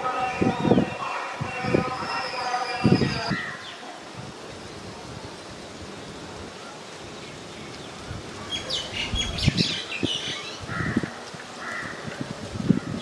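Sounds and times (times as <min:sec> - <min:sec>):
small birds chirping: 0:07.1 - 0:10.7.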